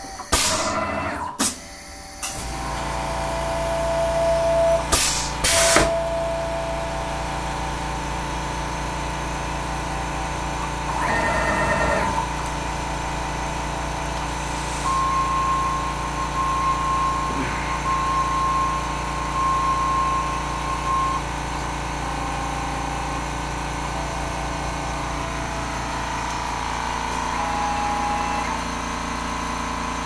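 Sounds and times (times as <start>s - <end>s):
higher machine whine: 0.0s - 30.0s
machine hum with whining tone: 0.0s - 30.0s
compressed air hisses: 14.3s - 14.9s.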